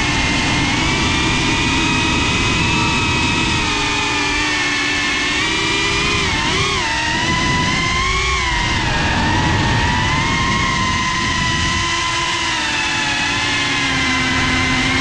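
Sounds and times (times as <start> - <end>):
drone motors whining: 0.0 - 15.0
rush of prop wash and wind: 5.2 - 15.0.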